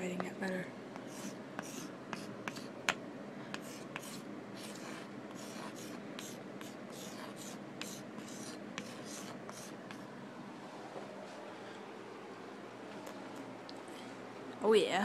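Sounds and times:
chalk scraping on chalkboard: 1.0s - 2.7s, 3.5s - 10.0s
chalk clicks: 1.0s - 3.0s.

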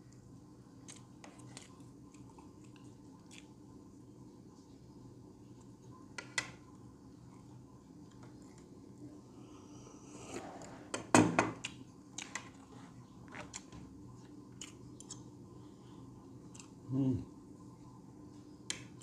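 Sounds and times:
chewing: 13.3s - 15.3s.

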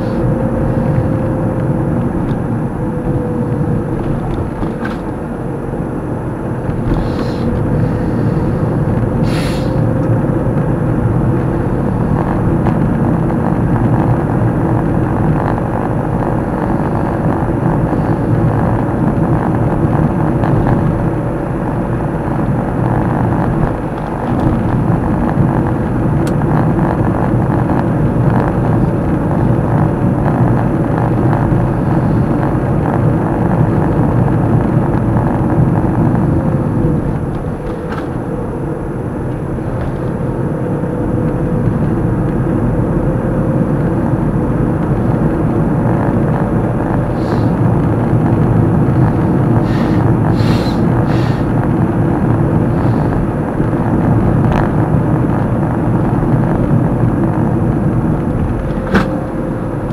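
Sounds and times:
car road and engine noise: 0.0s - 59.9s
short hisses: 7.0s - 8.5s, 9.2s - 9.8s, 49.7s - 51.5s.

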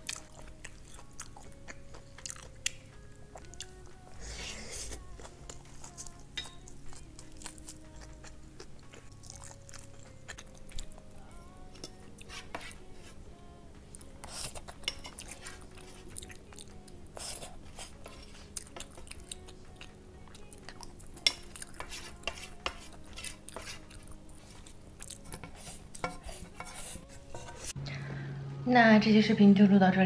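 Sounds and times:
wooden spoon scraping a pan: 12.3s - 13.2s, 21.8s - 23.9s, 25.3s - 27.8s.

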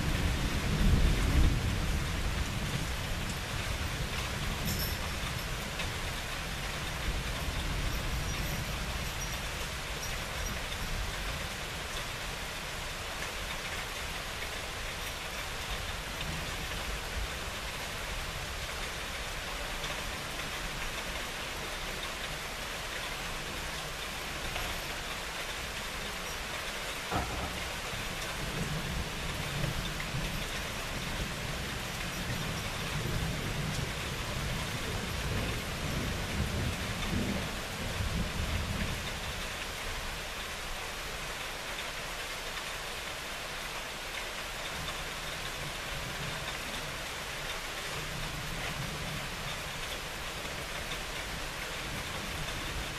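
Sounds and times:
low rolling thunder rumble: 0.0s - 4.6s, 27.1s - 39.3s
steady rain falling: 0.0s - 52.9s.

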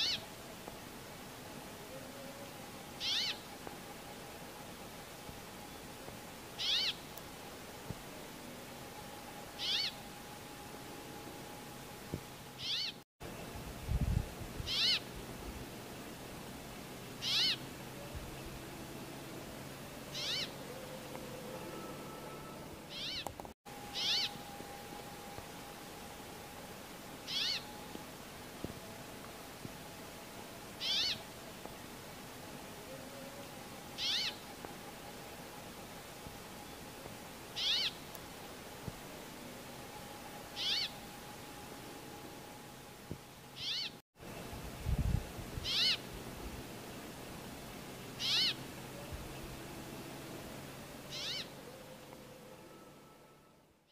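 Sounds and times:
bird calling: 0.0s - 0.3s, 3.0s - 3.5s, 6.6s - 7.1s, 9.6s - 10.0s, 12.6s - 13.0s, 14.7s - 15.1s, 17.2s - 18.1s, 20.1s - 24.4s, 27.2s - 27.8s, 30.8s - 31.3s, 34.0s - 34.5s, 37.6s - 38.2s, 40.5s - 41.0s, 43.6s - 44.0s, 45.6s - 46.1s, 48.1s - 49.2s, 51.0s - 52.2s.

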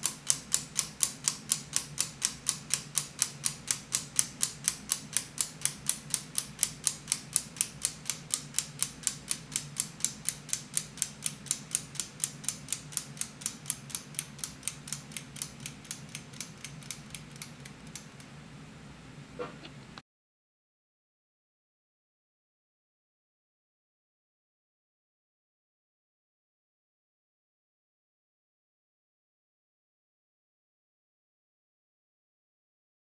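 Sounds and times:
clock mechanism ticking quickly: 0.0s - 18.3s.

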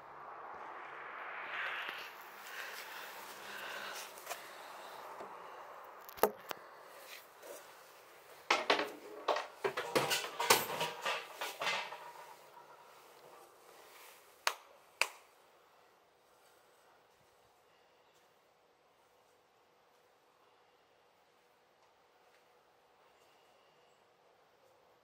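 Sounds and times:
rattling hits: 8.5s - 13.2s.

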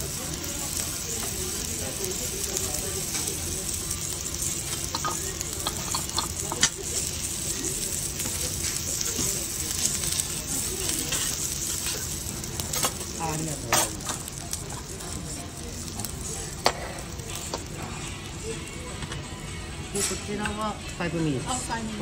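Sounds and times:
noodles sizzling on a griddle: 0.0s - 19.2s
utensils tapping on metal: 4.6s - 7.0s, 12.7s - 15.2s.

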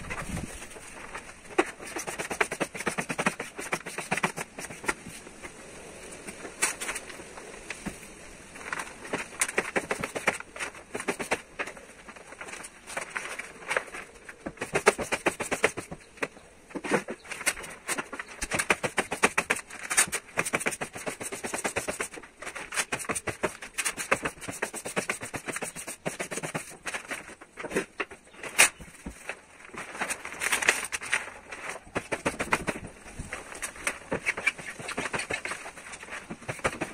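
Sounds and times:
vinyl film crackling and rustling: 0.0s - 36.9s.

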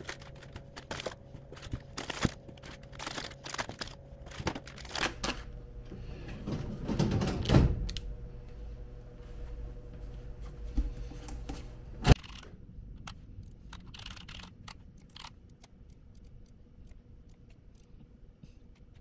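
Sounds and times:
handling rustling and clicks: 0.0s - 5.5s.

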